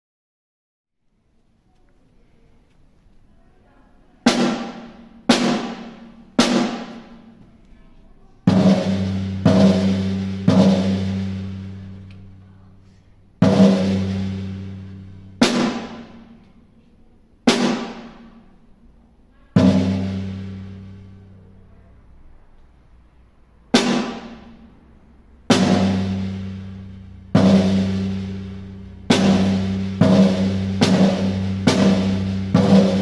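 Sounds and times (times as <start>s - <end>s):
snare drum strokes: 4.3s - 7.4s, 15.4s - 16.4s, 17.5s - 18.4s, 23.8s - 24.6s.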